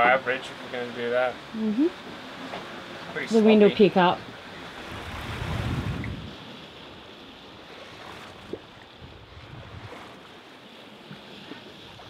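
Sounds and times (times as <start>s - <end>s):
sea water splashing on hulls: 0.0s - 12.0s
wind on microphone: 4.8s - 6.7s, 8.0s - 10.2s.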